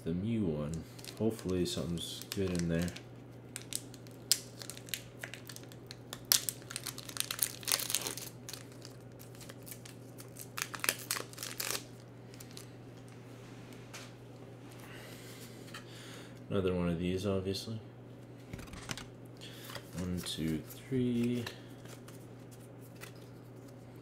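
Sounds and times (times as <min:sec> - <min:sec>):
steady low hum: 0:00.0 - 0:24.0
foil pack crinkling and tearing: 0:00.7 - 0:12.7.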